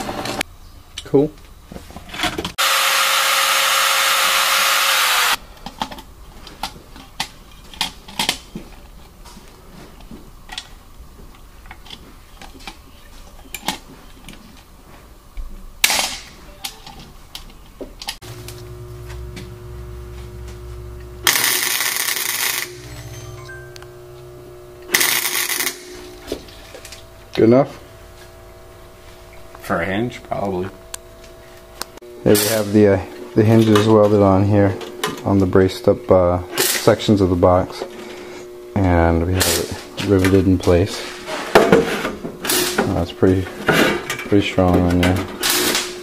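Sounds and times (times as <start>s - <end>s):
drill press boring metal: 2.6s - 5.4s, 18.3s - 23.5s
low steady hum: 16.5s - 36.5s
welder arc crackling: 18.2s - 28.1s.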